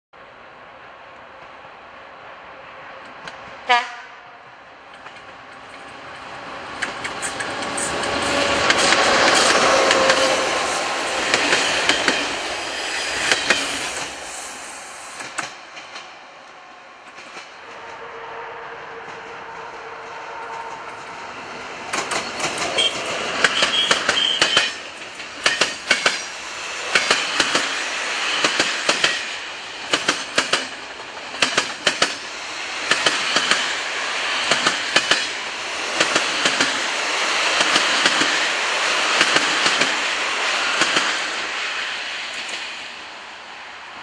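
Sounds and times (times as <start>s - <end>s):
train rumble: 0.2s - 44.0s
wheels clacking over rail joints: 4.9s - 12.5s, 19.1s - 27.8s, 28.4s - 33.8s, 34.4s - 36.9s, 37.5s - 38.5s
high wheel squeal: 22.2s - 24.8s.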